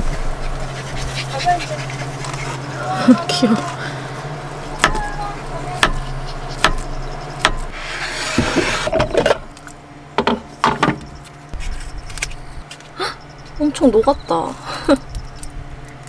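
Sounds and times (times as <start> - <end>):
steady low hum: 0.0 - 16.0
knife chopping on wooden board: 4.8 - 5.0, 5.8 - 6.0, 6.6 - 9.0
blade scraping across board: 7.4 - 9.4.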